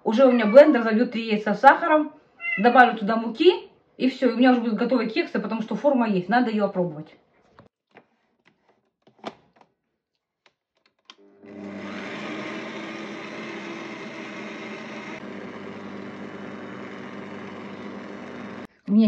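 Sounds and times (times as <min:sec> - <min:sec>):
stand mixer whisking in steel bowl: 0:11.3 - 0:18.7.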